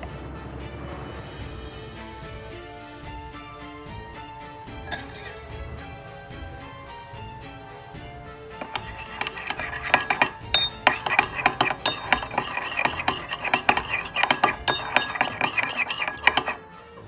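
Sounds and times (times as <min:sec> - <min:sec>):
spoon stirring in ceramic bowl: 0:04.9 - 0:05.5, 0:08.6 - 0:16.7.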